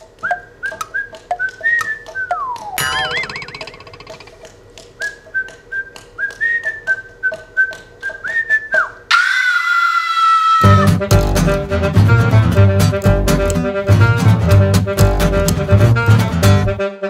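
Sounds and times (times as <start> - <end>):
light ticking beat: 0.0 - 3.7, 10.9 - 16.8
man whistling a tune: 0.2 - 2.8, 5.0 - 9.0
band with double bass: 10.6 - 16.8.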